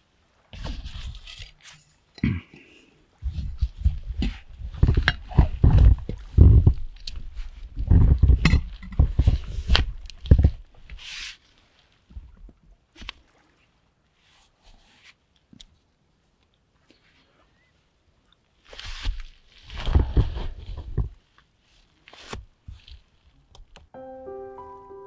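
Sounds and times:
handling noise rustling: 0.5s - 2.1s, 3.2s - 12.4s.

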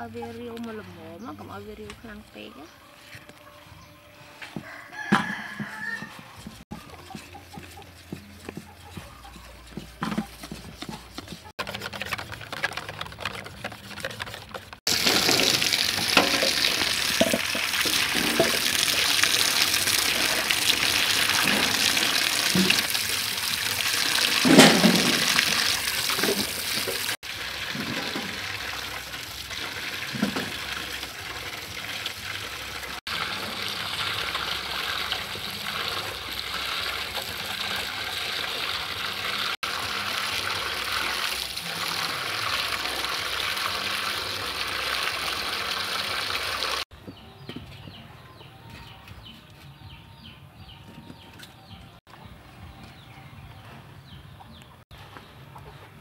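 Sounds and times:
utensil stirring batter: 5.3s - 24.5s
water splashing into metal basin: 14.9s - 46.8s.

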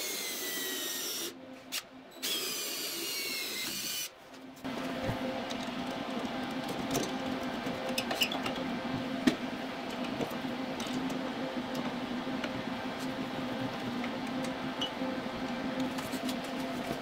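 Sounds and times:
steady low hum: 4.1s - 17.0s.

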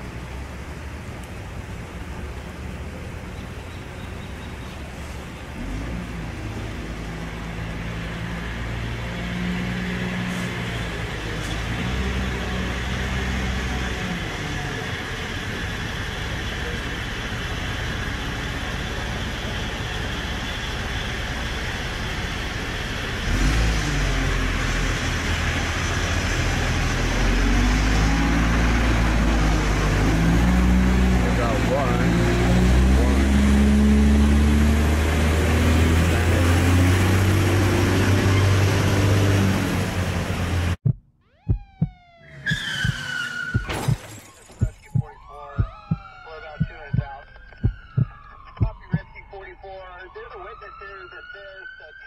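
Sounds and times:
traffic noise: 0.0s - 52.0s
vehicle engine: 0.0s - 52.0s.

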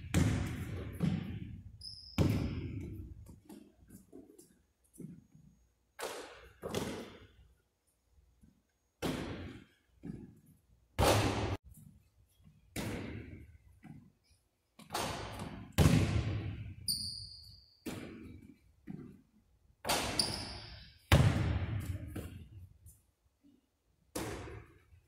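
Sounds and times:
basketball bouncing on wooden floor: 0.0s - 3.7s, 14.8s - 16.7s, 19.8s - 22.5s
sneaker squeak: 1.8s - 3.0s, 16.8s - 18.3s, 19.9s - 21.1s.

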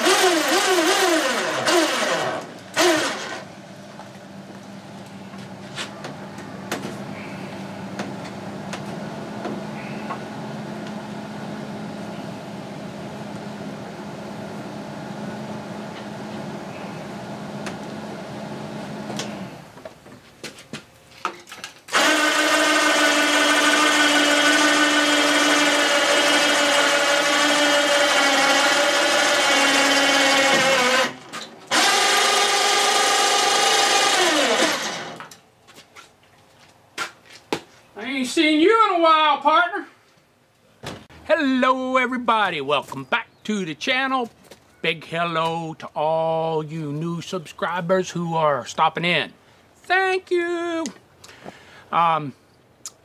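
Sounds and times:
electric motor whining: 0.0s - 3.5s, 21.9s - 35.3s.

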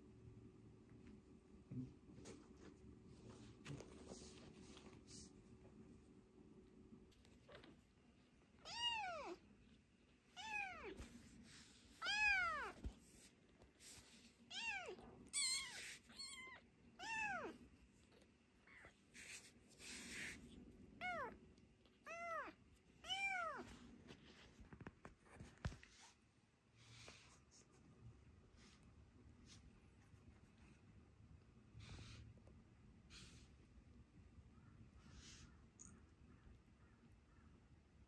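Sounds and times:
kitten meowing: 8.6s - 9.4s, 10.4s - 11.0s, 14.5s - 17.6s.

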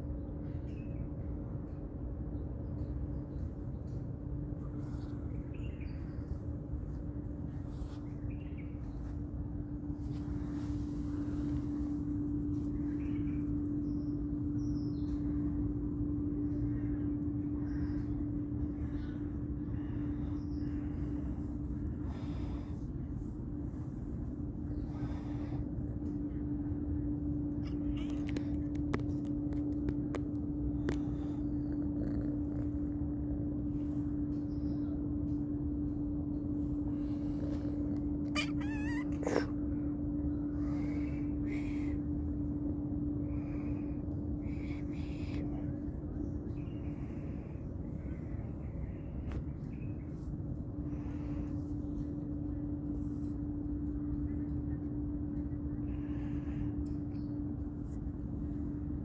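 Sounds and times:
steady low hum: 0.0s - 59.0s
steady mechanical drone: 0.0s - 59.0s
kitten meowing: 38.3s - 39.5s.

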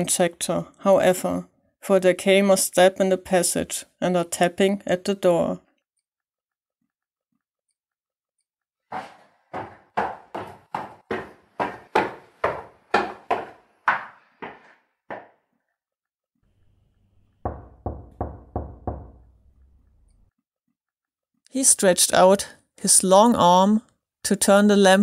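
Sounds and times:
quick sharp footsteps: 8.9s - 15.4s
knocks on a door: 9.6s - 15.3s, 17.4s - 19.3s.

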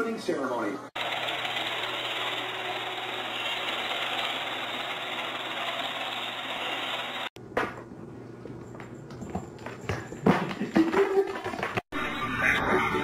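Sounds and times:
robot vacuum whirring: 1.0s - 7.3s.

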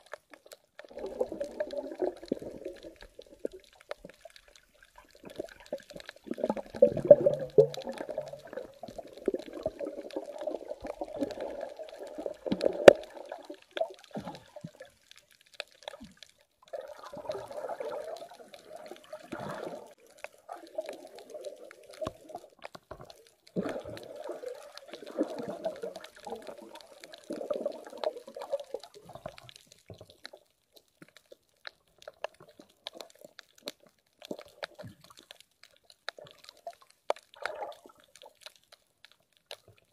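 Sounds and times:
underwater gurgling and bubbling: 0.0s - 30.4s, 36.1s - 38.5s.

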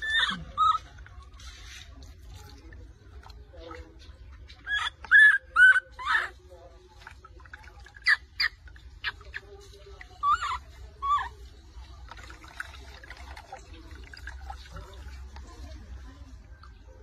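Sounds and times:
baby monkey whimpering cries: 0.0s - 1.1s, 4.6s - 6.4s, 10.2s - 11.5s
water trickling and splashing: 0.0s - 17.0s.

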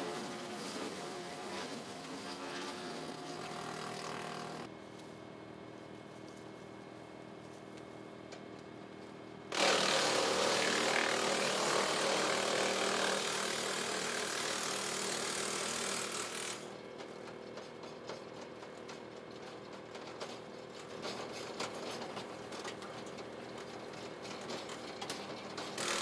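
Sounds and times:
wood chipper running: 0.0s - 5.1s, 9.5s - 17.2s, 25.7s - 26.0s
wood chipper chipping tree: 9.5s - 16.8s, 25.8s - 26.0s.

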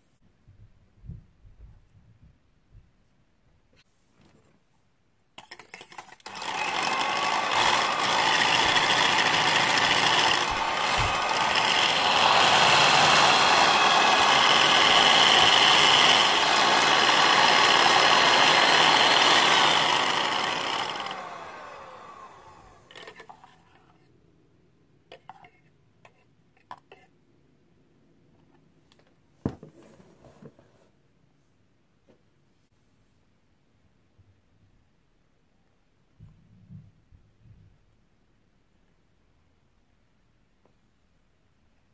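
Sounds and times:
electric hand mixer whirring: 5.9s - 23.3s.

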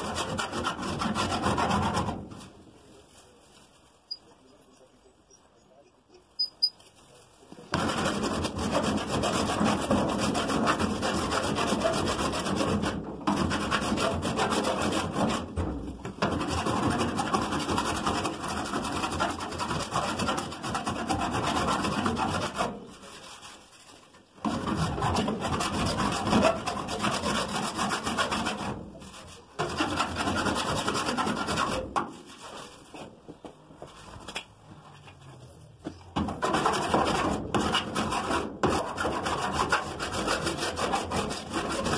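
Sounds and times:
metal file rasping on metal: 0.0s - 2.2s, 7.7s - 32.7s, 36.4s - 41.9s.

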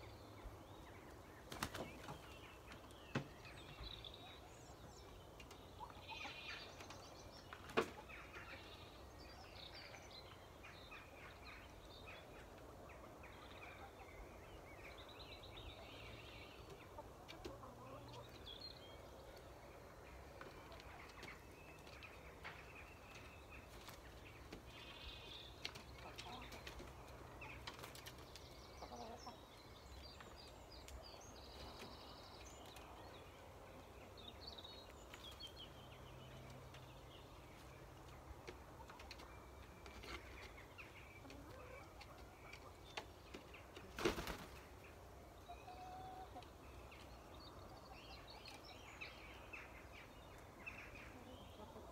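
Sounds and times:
chickens clucking: 0.5s - 9.2s, 15.4s - 29.8s, 35.0s - 48.7s, 49.4s - 51.9s.

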